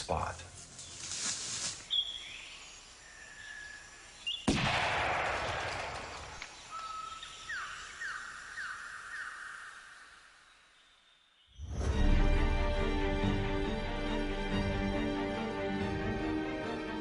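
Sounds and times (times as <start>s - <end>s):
whistled bird calls: 1.9s - 4.5s, 6.3s - 9.9s
gunshot echoing: 4.5s - 6.4s.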